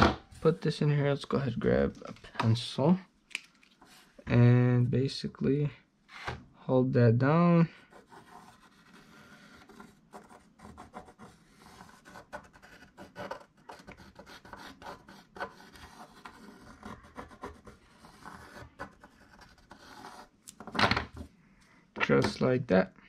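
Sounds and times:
pencil scratching on paper: 7.7s - 20.4s.

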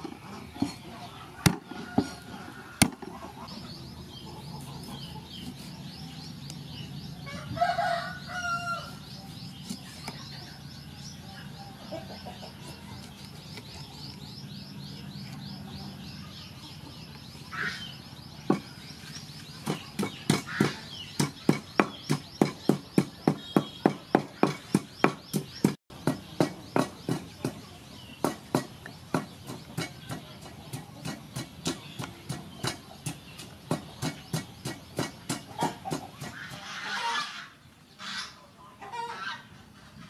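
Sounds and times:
pestle pounding in wooden mortar: 1.4s - 3.1s, 18.5s - 18.7s, 19.6s - 36.6s.

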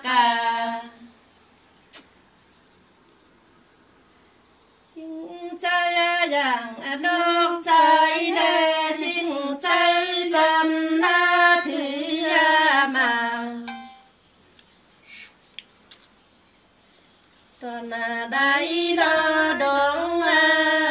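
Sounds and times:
woman singing unaccompanied: 0.0s - 1.2s, 4.9s - 13.9s, 17.6s - 20.9s.

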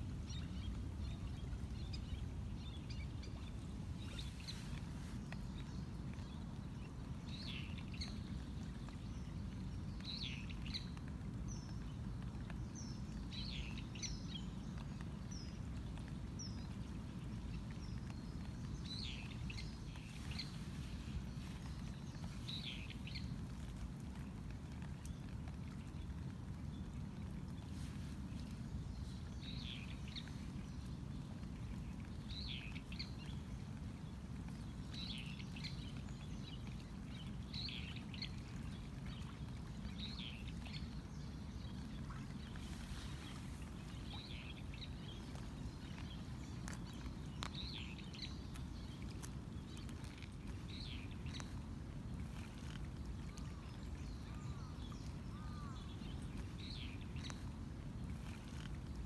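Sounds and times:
small birds chirping: 0.2s - 26.2s, 27.4s - 59.0s.

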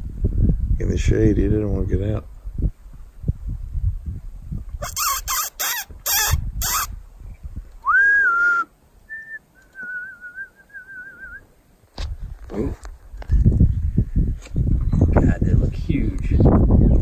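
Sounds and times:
person whistling notes: 7.8s - 11.4s.

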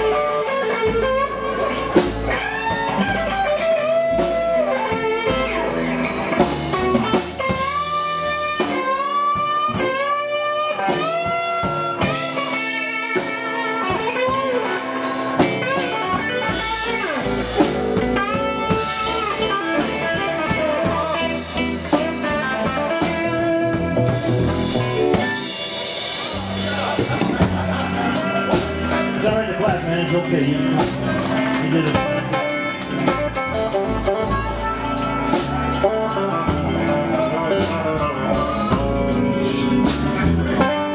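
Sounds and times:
drum kit: 0.0s - 40.9s
electric guitar lead: 0.0s - 40.9s
upright bass: 0.0s - 40.9s
harmonica: 31.7s - 40.9s.

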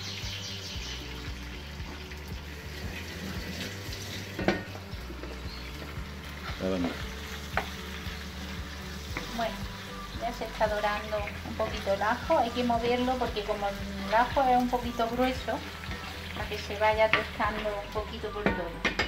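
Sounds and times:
garlic sizzling in oil: 0.0s - 19.0s.

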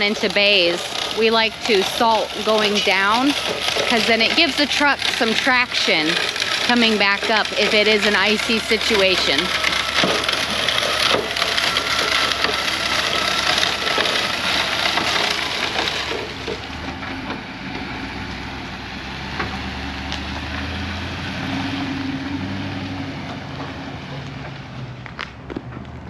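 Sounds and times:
salt granules crackling on pavement: 0.0s - 16.9s
pickup engine hum: 0.0s - 26.0s.

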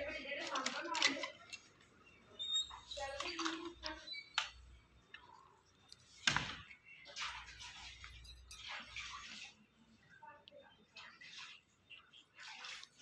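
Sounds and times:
rinsing water: 7.0s - 10.2s, 10.8s - 13.0s
scrubbing: 7.0s - 10.2s, 10.8s - 13.0s.

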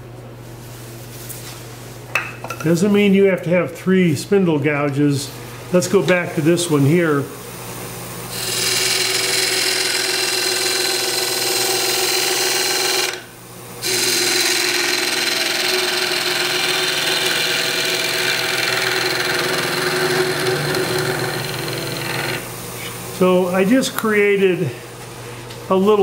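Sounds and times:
turning tool scraping wood: 8.3s - 13.2s, 13.8s - 22.5s
lathe humming: 8.3s - 22.5s.

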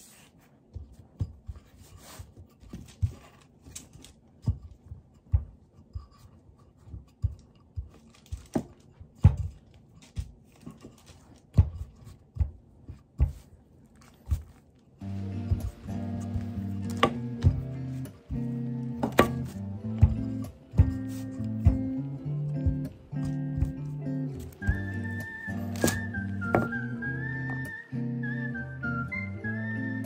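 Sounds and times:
faint rubbing of dough: 0.0s - 8.2s, 9.8s - 21.9s
rolling pin knocking on wooden board: 15.4s - 26.8s.

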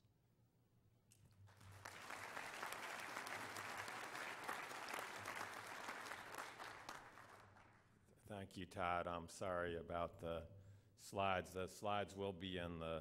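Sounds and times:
audience clapping: 1.4s - 7.9s.

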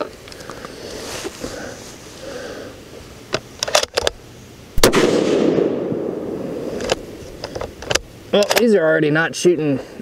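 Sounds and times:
rifle shot: 4.8s - 7.2s.

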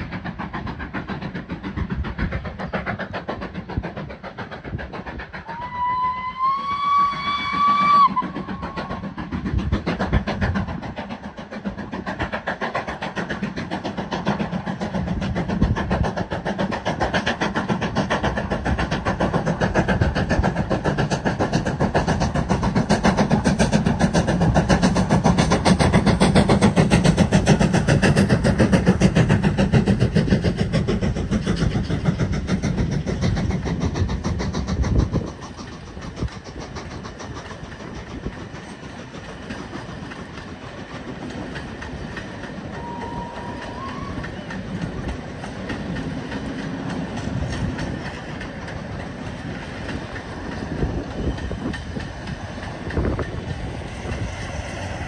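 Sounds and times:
train running: 0.0s - 55.0s
steam locomotive whistle: 5.4s - 8.8s, 42.7s - 44.6s.

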